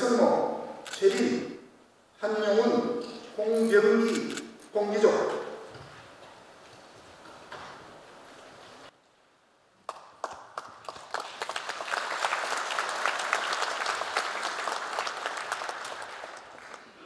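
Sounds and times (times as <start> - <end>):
audience applause: 9.9 - 17.0.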